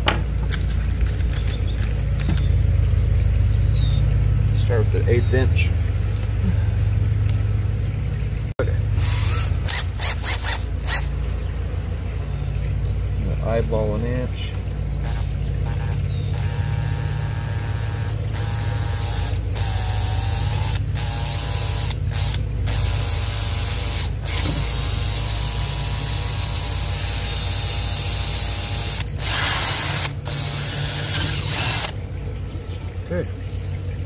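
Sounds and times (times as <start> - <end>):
cordless drill drilling metal: 9.0 - 11.1, 15.0 - 32.0.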